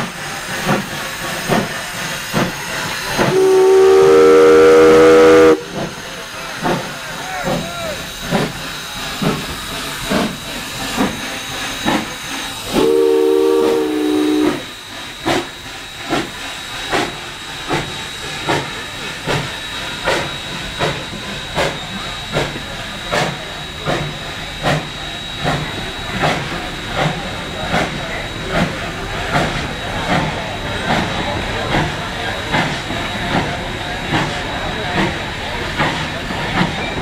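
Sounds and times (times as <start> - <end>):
steam locomotive chuffing: 0.0 - 37.0
steam whistle blast: 3.2 - 5.8, 12.7 - 14.7.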